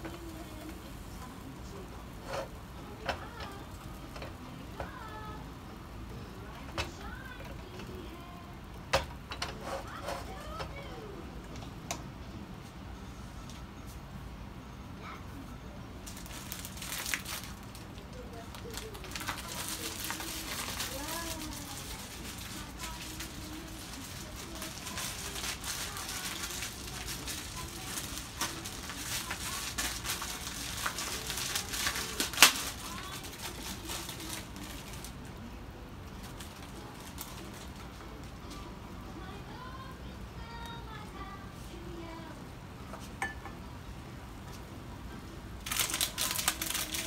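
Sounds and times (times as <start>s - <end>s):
sharp crackles: 16.0s - 35.1s.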